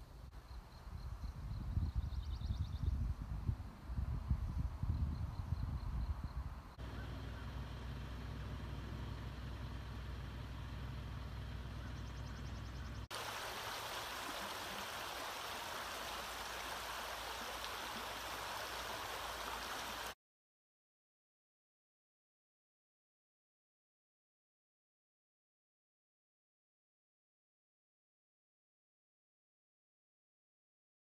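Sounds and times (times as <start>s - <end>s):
low rumble with hiss: 6.4s - 20.2s
creek running over stones: 13.1s - 20.2s.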